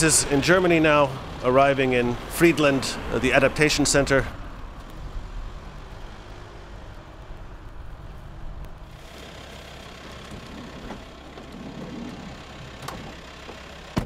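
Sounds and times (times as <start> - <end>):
engine idling: 8.8 - 14.0.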